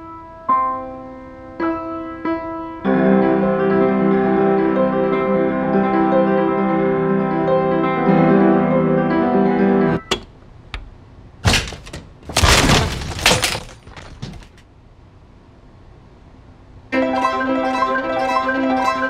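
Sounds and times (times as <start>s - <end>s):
door forced open with crash: 11.4s - 14.6s.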